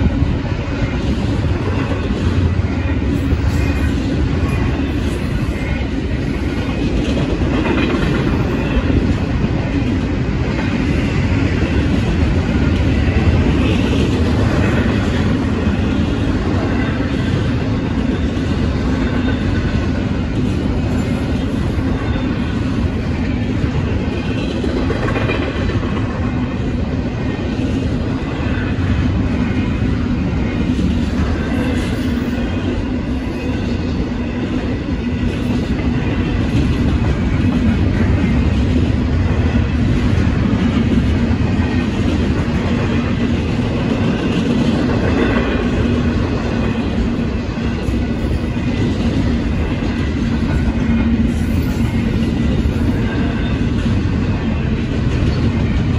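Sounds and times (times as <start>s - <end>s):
train wheels rumbling on rails: 0.0s - 55.9s.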